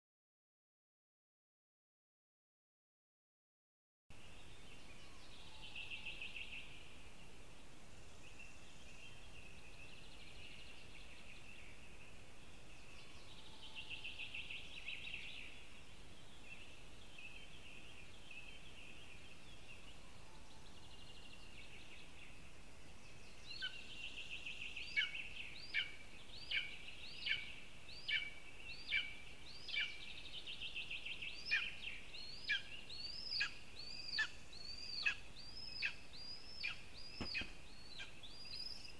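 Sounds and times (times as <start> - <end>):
high trilled bird songs: 8.2 - 38.9.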